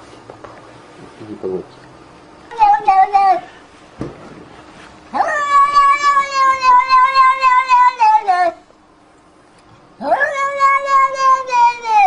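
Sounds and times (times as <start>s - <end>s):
cat yowling: 2.5s - 3.5s, 5.1s - 8.6s, 10.0s - 12.0s.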